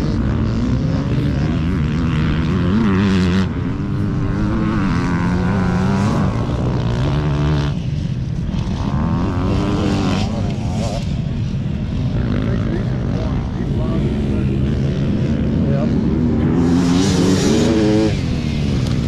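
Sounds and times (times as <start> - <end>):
dirt bike engines revving: 0.0 - 19.0.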